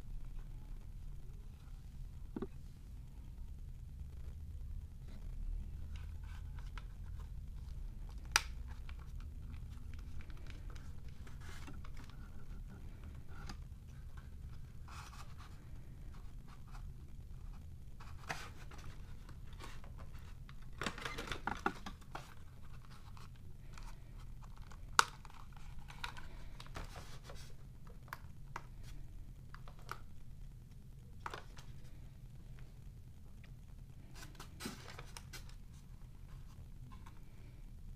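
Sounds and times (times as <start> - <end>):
plastic packaging rustling: 18.0 - 30.1.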